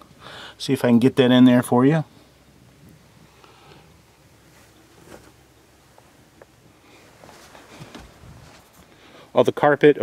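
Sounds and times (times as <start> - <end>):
faint background hiss: 0.0 - 10.0.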